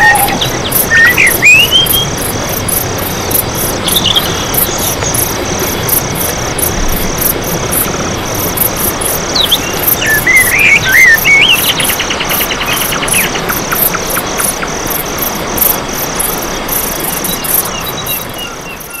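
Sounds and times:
bird warbling and trilling: 0.0s - 2.2s, 9.4s - 14.7s
insect chirping rhythmically: 0.0s - 19.0s.

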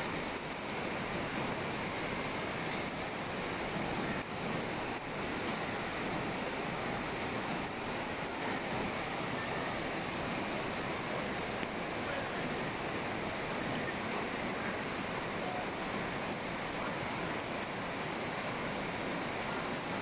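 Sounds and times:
floodwater rushing: 0.0s - 20.0s.

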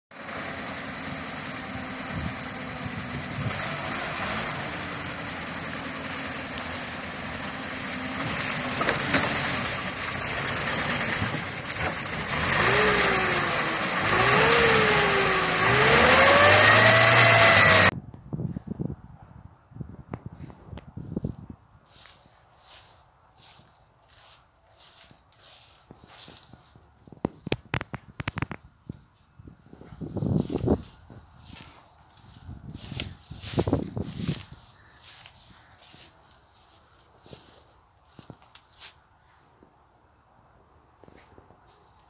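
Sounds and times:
truck engine revving: 0.2s - 18.0s.

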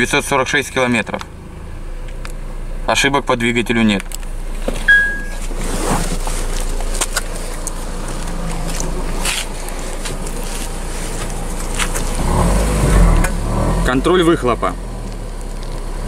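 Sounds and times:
car engine idling: 0.0s - 16.0s
short electronic beep: 4.9s - 5.4s.

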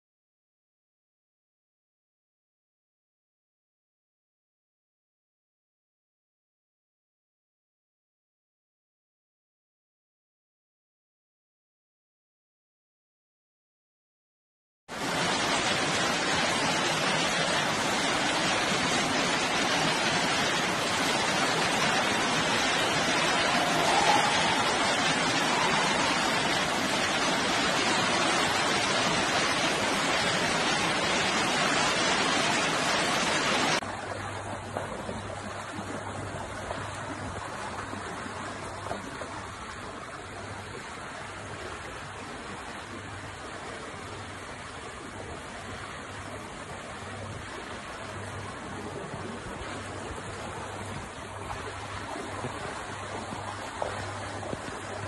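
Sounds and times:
floodwater pouring: 14.9s - 41.1s
floodwater running along street: 14.9s - 55.0s.

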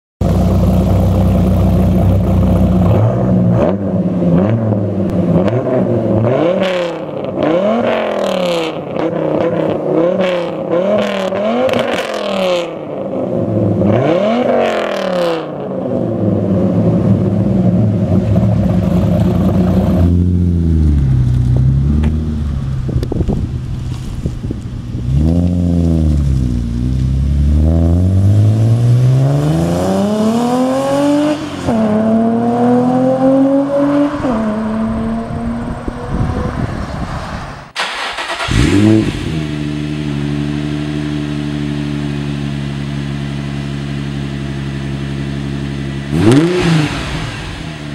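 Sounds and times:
car engine idling: 0.2s - 3.0s, 16.9s - 25.0s, 37.8s - 47.9s
car accelerating: 0.2s - 47.9s
car engine revving: 0.2s - 47.9s.

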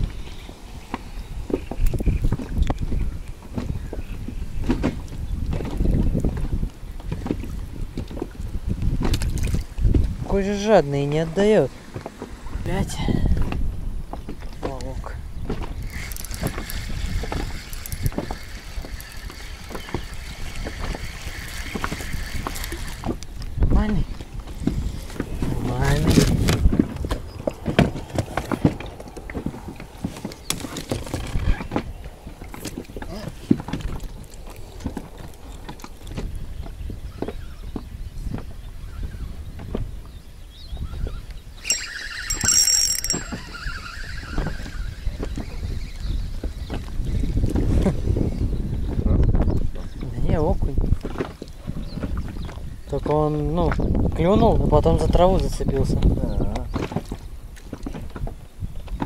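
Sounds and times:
water lapping against boat hull: 0.0s - 10.3s, 11.7s - 38.6s, 48.8s - 54.7s, 55.4s - 59.0s
wind buffeting microphone: 0.0s - 59.0s
fishing reel whirring: 15.8s - 23.1s, 41.6s - 46.2s.

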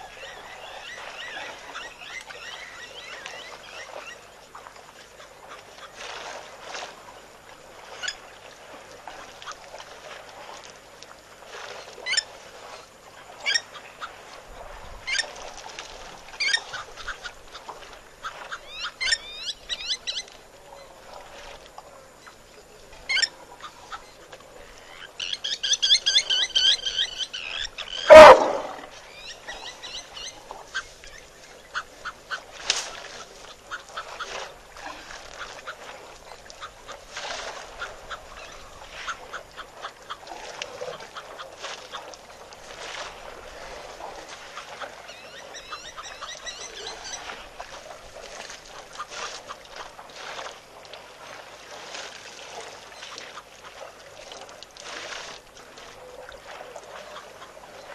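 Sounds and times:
birds calling: 24.8s - 30.9s.

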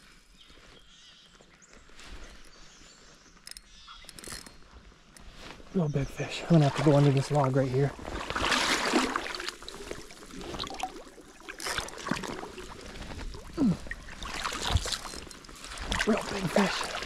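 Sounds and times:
clothes and gear rustling: 0.0s - 5.8s, 7.9s - 17.0s
creek water splashing: 5.9s - 17.0s.

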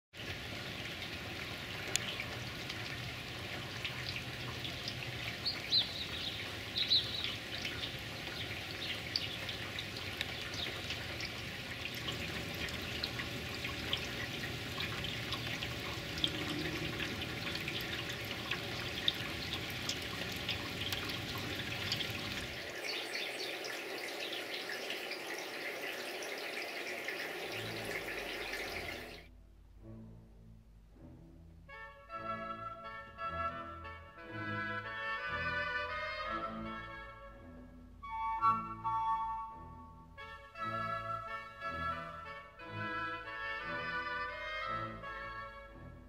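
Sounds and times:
drips and splashes: 0.1s - 29.3s
rain falling: 0.2s - 29.3s.

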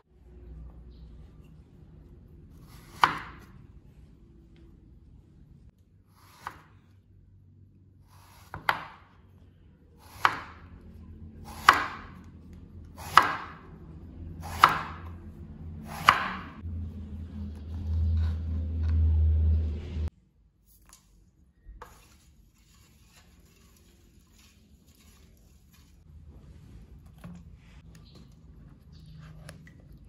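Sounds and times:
low rumble: 15.0s - 20.1s.

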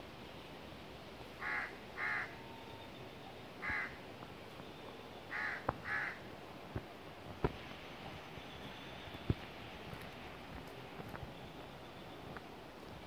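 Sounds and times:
stream water hiss: 0.0s - 13.0s
crow cawing: 1.4s - 2.4s, 3.6s - 4.0s, 5.3s - 6.2s.

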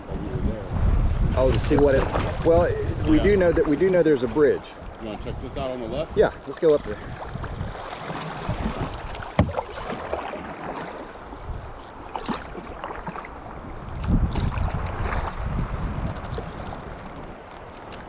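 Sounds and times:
water washing along hull: 0.0s - 18.0s
paddle strokes splashing water: 1.5s - 2.6s, 6.4s - 18.0s.

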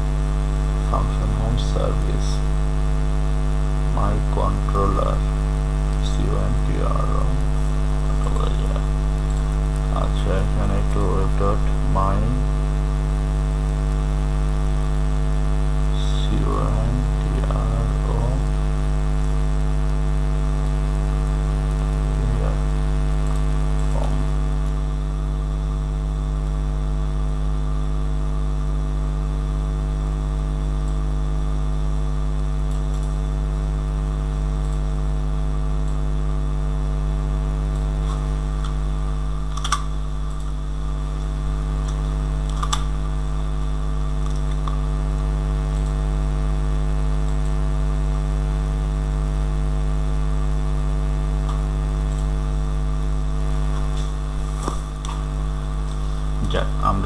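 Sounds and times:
electrical mains hum: 0.0s - 57.0s
sharp click: 39.5s - 40.6s, 41.8s - 43.0s.

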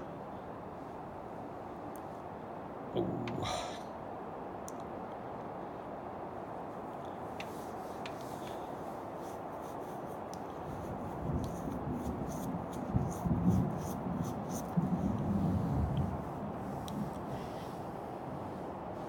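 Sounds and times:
background hiss: 0.0s - 19.0s
light ticks: 4.6s - 5.2s, 7.0s - 8.6s, 10.2s - 10.6s, 16.8s - 17.3s
thunder rumbling: 11.3s - 17.6s.

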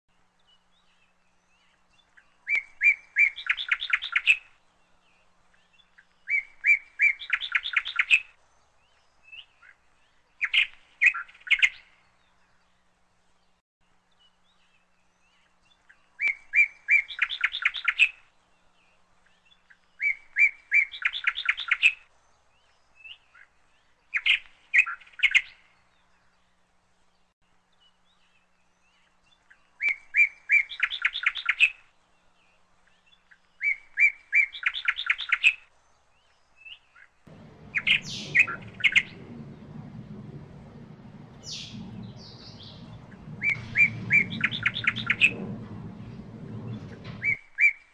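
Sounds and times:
songbird chirping: 27.7s - 47.8s
low steady rumble: 37.3s - 47.4s.

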